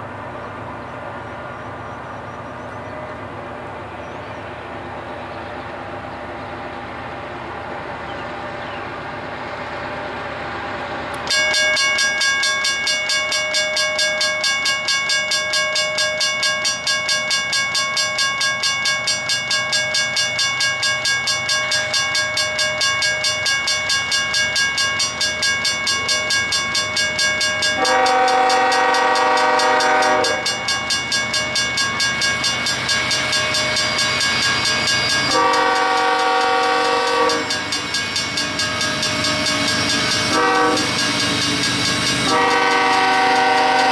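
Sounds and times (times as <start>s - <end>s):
railroad crossing bells ringing: 0.0s - 43.9s
locomotive air horn blasts: 27.8s - 30.6s, 35.2s - 37.8s, 40.1s - 41.0s, 42.2s - 43.9s.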